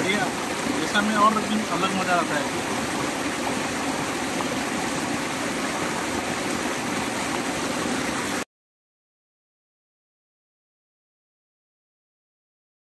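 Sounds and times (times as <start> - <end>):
water rushing over rocks: 0.0 - 8.4.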